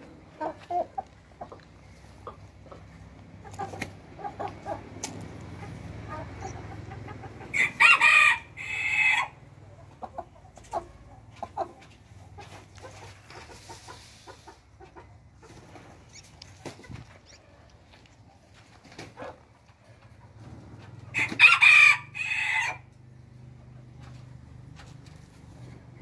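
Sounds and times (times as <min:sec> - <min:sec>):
chickens clucking: 0:00.0 - 0:26.0
rooster crowing: 0:07.5 - 0:09.4, 0:21.1 - 0:22.9.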